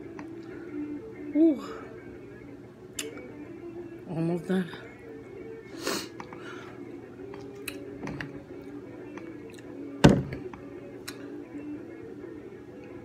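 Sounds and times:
faint background music: 0.0 - 13.0
loud thunk: 10.0 - 10.5.

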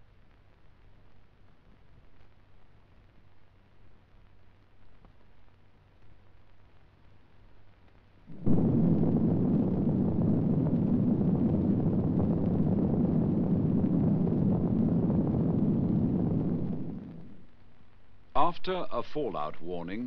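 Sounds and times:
explosion blast: 8.3 - 17.6
deep rumble: 8.3 - 18.8.

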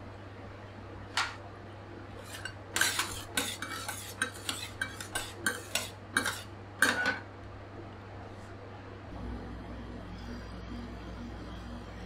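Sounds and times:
metal scrapers on steel plate: 2.2 - 7.0.

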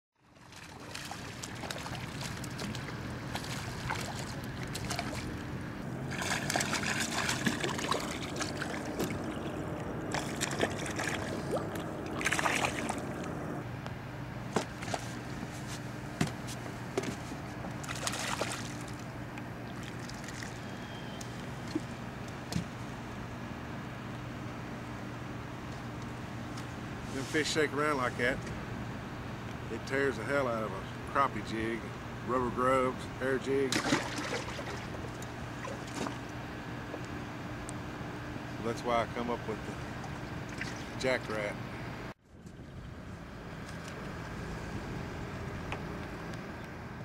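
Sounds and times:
steady low hum: 0.2 - 47.0
fish splashing at water surface: 0.4 - 5.4, 6.0 - 9.4, 10.1 - 13.1, 17.8 - 19.0, 19.7 - 20.8, 33.7 - 36.3.

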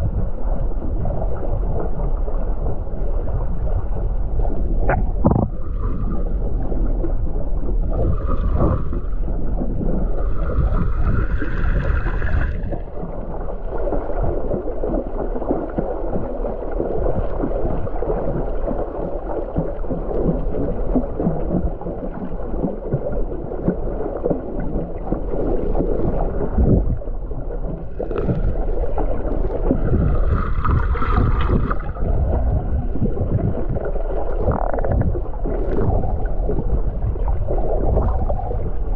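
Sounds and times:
muffled underwater rush: 0.0 - 38.9.

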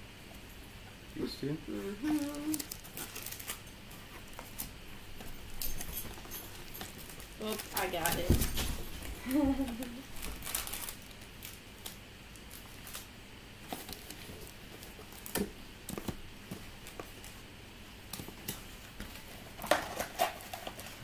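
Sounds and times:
foil card packs crinkling: 2.0 - 4.7, 6.1 - 9.1, 9.7 - 17.5, 18.2 - 21.0.

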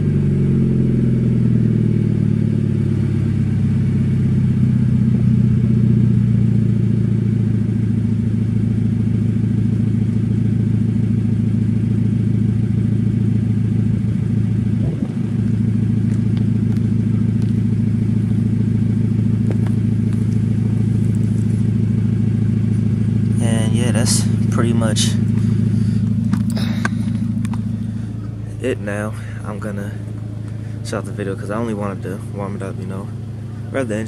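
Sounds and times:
car engine idling: 0.0 - 34.0.

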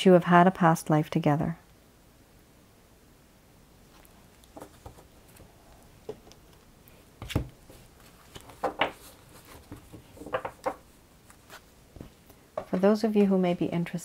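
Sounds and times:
cards tapping and rustling: 4.5 - 6.4, 7.2 - 12.8.

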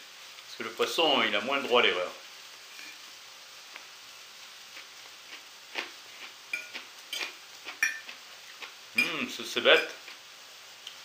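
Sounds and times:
fish sizzling in a pan: 0.0 - 11.0
fork clinking on porcelain plate: 6.6 - 8.1, 9.0 - 9.2, 9.8 - 10.0.

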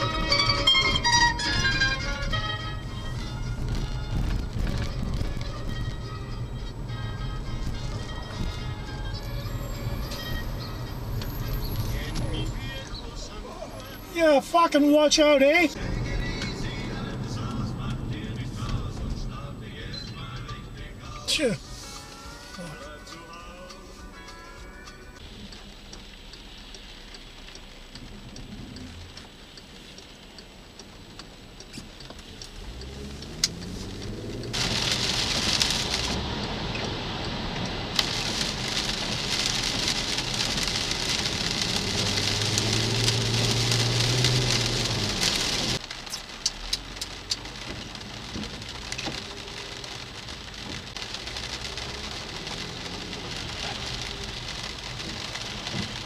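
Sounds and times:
rain on windshield: 0.0 - 56.0
raindrop ticks: 0.0 - 56.0
car engine accelerating: 31.5 - 56.0.

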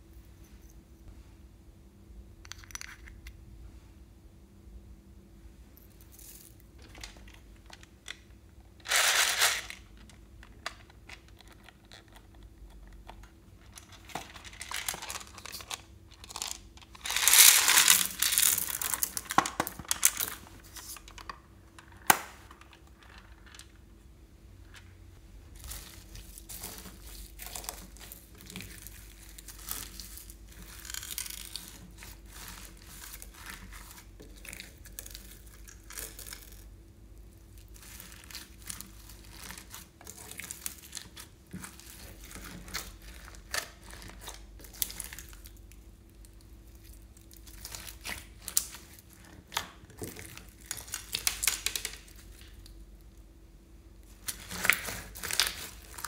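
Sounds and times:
slime crinkling and crackling: 13.8 - 21.2, 25.5 - 52.8, 54.1 - 56.0.

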